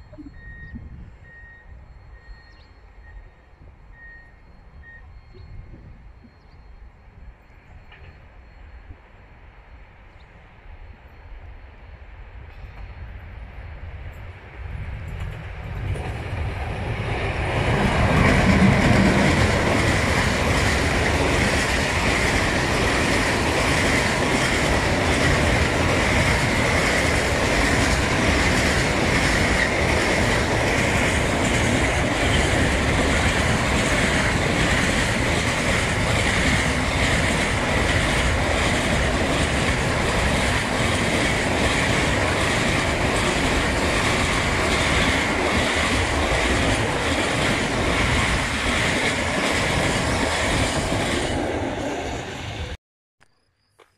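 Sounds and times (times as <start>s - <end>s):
freight train passing: 0.0s - 52.8s
high ringing from train wheels: 15.1s - 51.6s.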